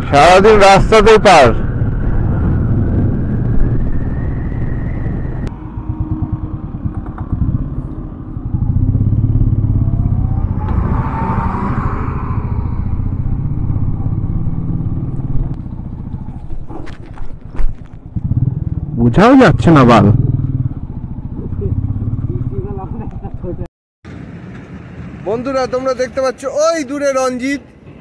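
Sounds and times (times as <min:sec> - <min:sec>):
motorcycle engine running: 0:02.6 - 0:10.7, 0:12.8 - 0:23.7.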